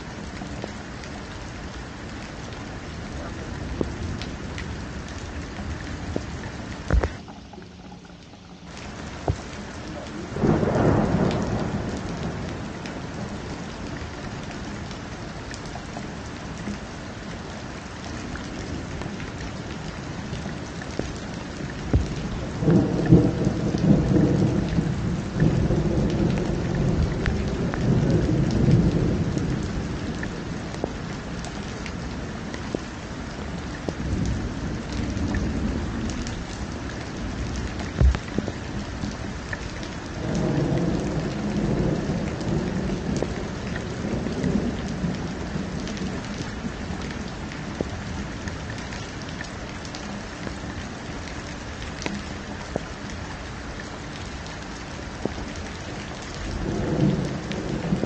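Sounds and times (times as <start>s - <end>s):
steady rain: 0.0s - 58.0s
thunder rumbling: 3.1s - 14.6s, 19.8s - 31.4s, 32.7s - 39.4s, 40.1s - 48.0s, 55.2s - 58.0s.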